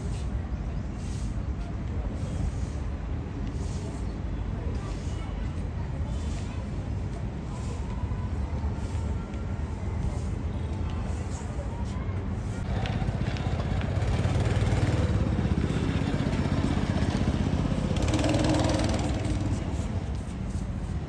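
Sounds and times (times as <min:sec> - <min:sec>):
go-kart engines running: 0:12.2 - 0:21.0.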